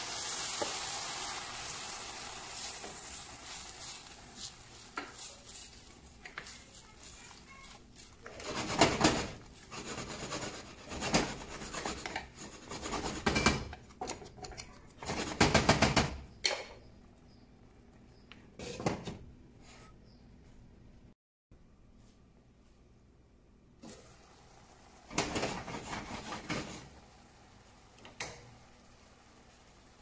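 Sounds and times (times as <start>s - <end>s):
utensil scraping cookware: 2.9s - 15.4s.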